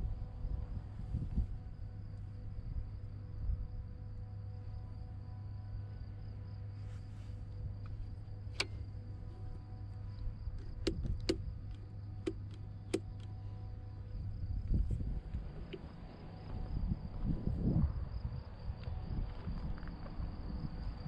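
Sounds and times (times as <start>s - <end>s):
steady low hum: 0.0s - 21.0s
scooter parts clicking: 10.5s - 13.4s.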